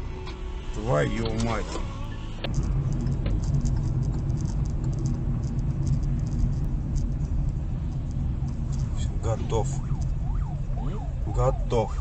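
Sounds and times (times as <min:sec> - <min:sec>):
car engine and road rumble: 0:00.0 - 0:12.0
light irregular clicking: 0:02.4 - 0:10.5.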